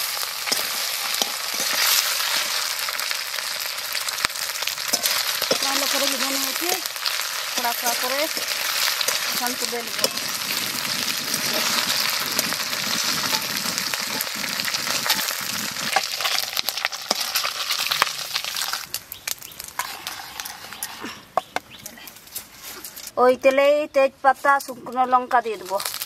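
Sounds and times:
metal spatula scraping a pan: 0.0s - 2.7s, 4.9s - 6.6s, 7.6s - 18.8s, 19.8s - 21.5s
fish frying in oil: 0.0s - 20.9s, 25.6s - 26.0s.

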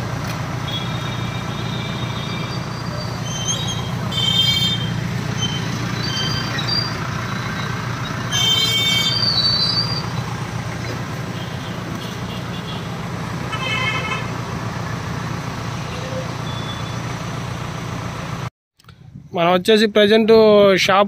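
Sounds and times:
truck diesel engine drone: 0.0s - 19.1s
road noise: 0.0s - 19.7s
vehicle horn toot: 0.6s - 5.6s, 8.3s - 10.0s, 11.3s - 14.4s.

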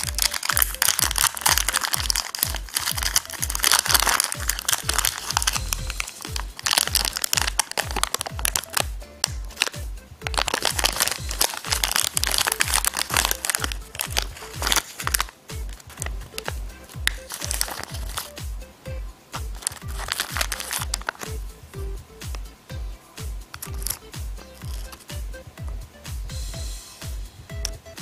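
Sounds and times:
plastic packet crinkling: 0.0s - 18.4s, 19.5s - 21.3s, 23.6s - 24.0s, 24.6s - 25.0s
background music with a beat: 0.0s - 28.0s.

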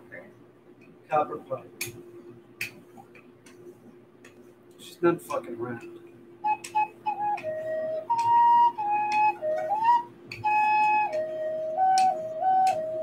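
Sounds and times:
recorder playing slow melody: 6.4s - 13.0s.

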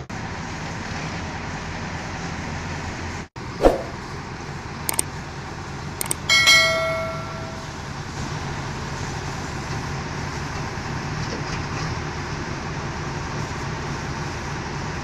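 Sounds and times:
excavator diesel engine running: 0.0s - 15.0s
quick clicks: 6.0s - 6.3s
bell-like ding: 6.3s - 8.0s.

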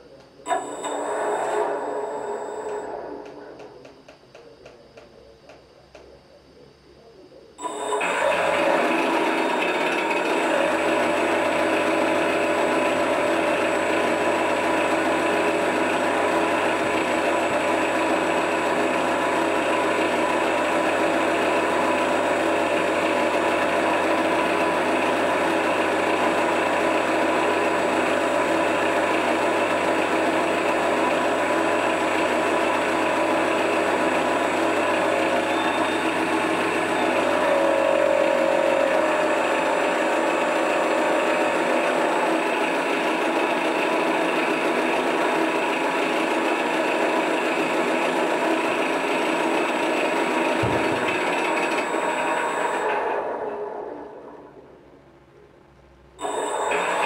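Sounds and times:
simulated aircraft engine running: 8.0s - 53.2s.

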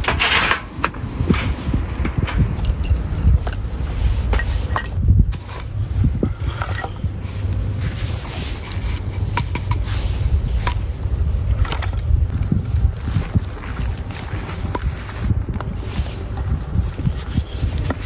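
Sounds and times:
camp tools knocking and clicking: 0.0s - 5.7s, 9.0s - 9.9s
wind rumbling on microphone: 0.0s - 18.0s.

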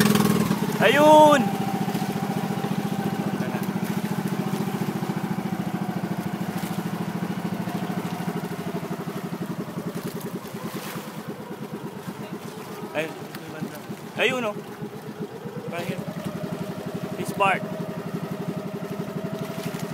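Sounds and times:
boat engine pulsing: 0.0s - 19.9s.

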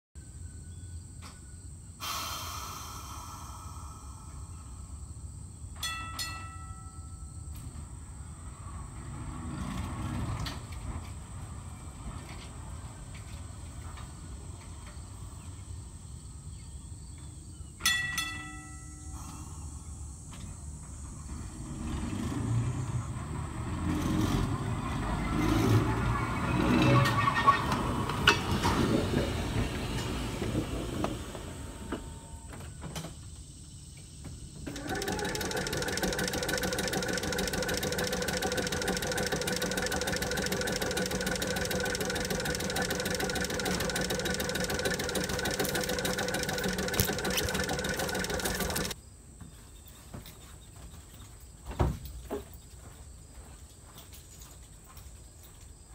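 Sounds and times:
air compressor running: 2.0s - 4.6s, 34.6s - 49.0s
streetcar motors and wheels rumbling: 19.9s - 32.8s
wheel squeal and clicks: 23.9s - 29.0s, 34.6s - 49.0s.

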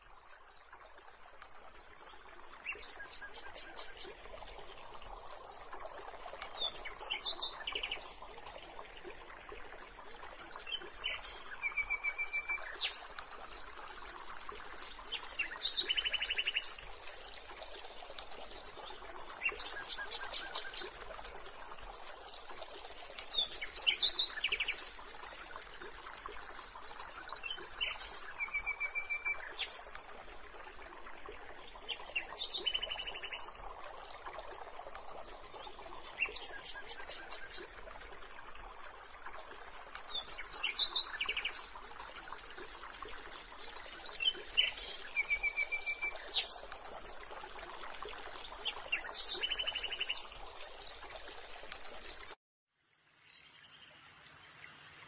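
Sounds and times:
stream flowing: 0.0s - 55.0s
songbirds chirping: 0.4s - 9.3s, 9.9s - 34.5s, 35.2s - 41.8s.

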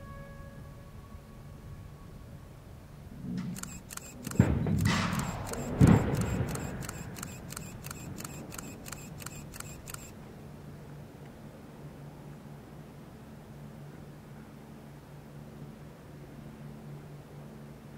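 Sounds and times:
rapid regular clicks: 3.5s - 10.1s
sharp blast report: 3.6s - 10.1s.

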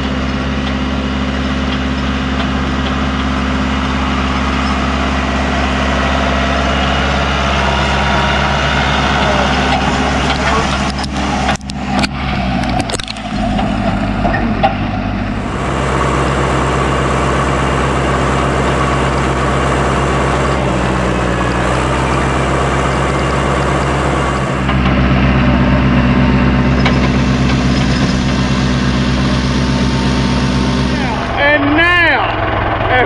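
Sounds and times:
tractor engine running: 0.0s - 33.0s.

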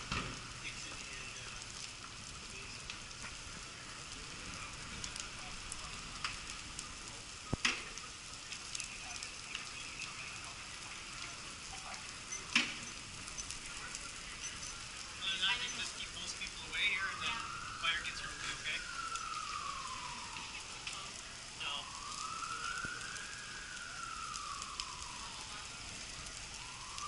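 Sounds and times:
fire crackling and hissing: 0.0s - 27.0s
sharp pops: 7.4s - 8.9s, 12.3s - 14.8s.

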